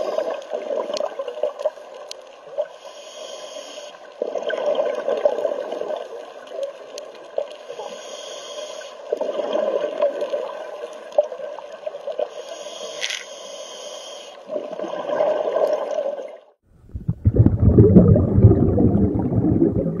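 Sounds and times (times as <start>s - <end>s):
regulator hissing on inhale: 0.0s - 0.5s, 2.7s - 4.1s, 7.6s - 9.1s, 12.3s - 14.4s
exhaled bubbles gurgling: 4.2s - 6.2s, 9.1s - 10.8s, 14.4s - 20.0s.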